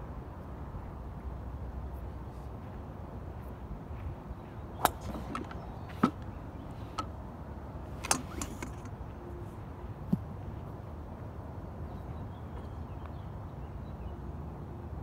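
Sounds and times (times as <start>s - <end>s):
sharp clicks or knocks: 4.8s - 7.1s, 8.0s - 9.0s.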